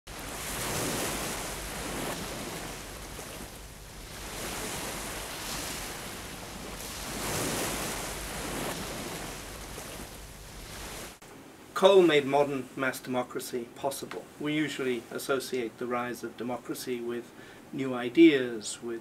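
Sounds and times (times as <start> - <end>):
sea waves washing: 0.1 - 11.2.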